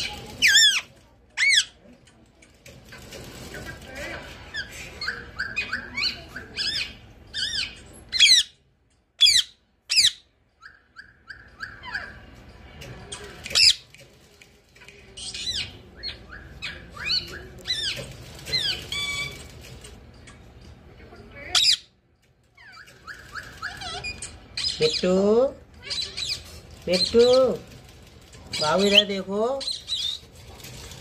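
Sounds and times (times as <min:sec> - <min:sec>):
parakeet chirps and squawks: 0:00.0 - 0:01.8, 0:04.5 - 0:08.6, 0:09.2 - 0:12.4, 0:21.5 - 0:21.9, 0:22.6 - 0:25.0.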